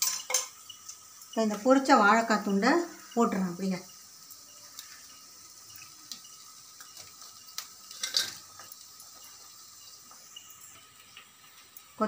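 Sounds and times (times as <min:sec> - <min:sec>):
clatter and scrape of metal: 0:07.9 - 0:08.4.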